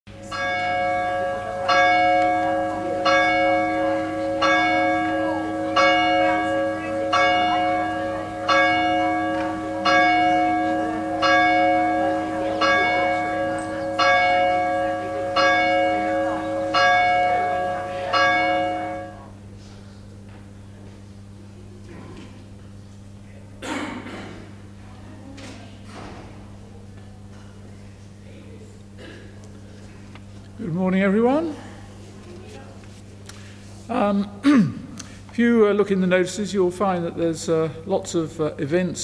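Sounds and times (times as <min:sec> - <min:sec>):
church bell tolling: 0:00.1 - 0:19.4.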